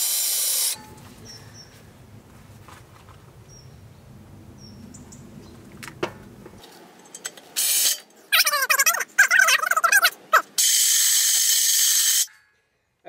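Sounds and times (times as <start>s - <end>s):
saw teeth squealing and chattering: 8.3s - 12.2s.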